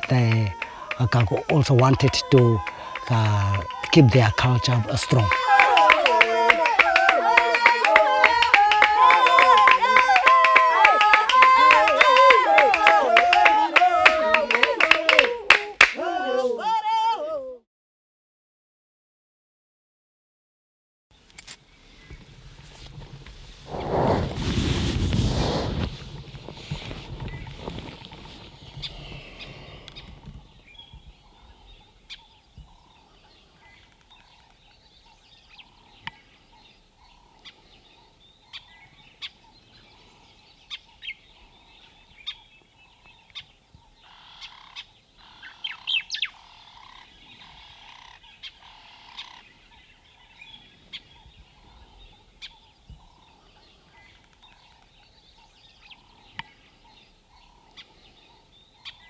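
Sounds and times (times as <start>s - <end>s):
birds calling: 0.0s - 10.8s, 25.7s - 59.0s
wind noise: 21.9s - 31.8s
sharp bird chirps: 41.8s - 53.3s.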